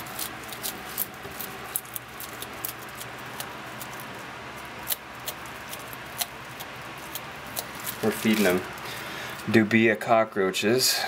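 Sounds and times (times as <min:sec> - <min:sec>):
lizard crunching an insect: 0:00.0 - 0:09.5.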